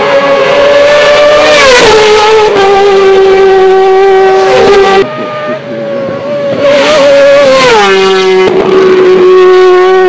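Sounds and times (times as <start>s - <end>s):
racing motorcycle engine passing: 0.0s - 10.0s.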